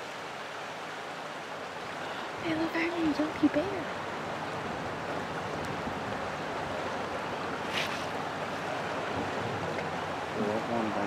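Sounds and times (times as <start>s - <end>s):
river current rushing: 0.0s - 11.0s
short high hiss: 7.7s - 8.2s.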